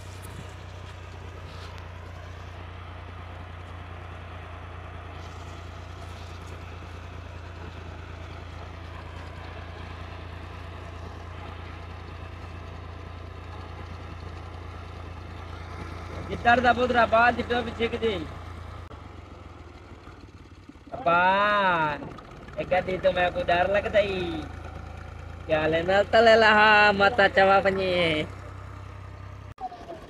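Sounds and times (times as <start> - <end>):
tractor diesel engine idling: 0.0 - 30.0.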